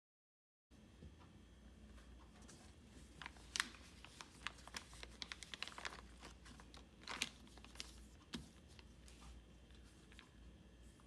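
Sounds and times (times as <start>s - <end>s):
plastic bag crinkling: 2.9s - 10.4s.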